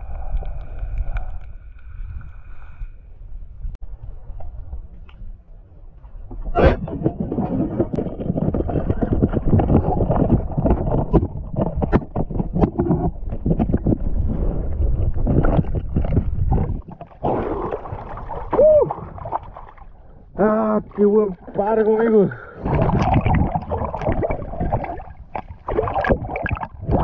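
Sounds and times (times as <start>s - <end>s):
fish thrashing in water: 22.6s - 27.0s.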